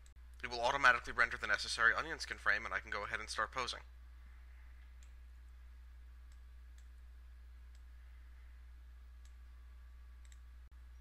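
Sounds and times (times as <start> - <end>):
low electrical hum: 0.0 - 11.0
faint computer mouse clicks: 10.2 - 10.5.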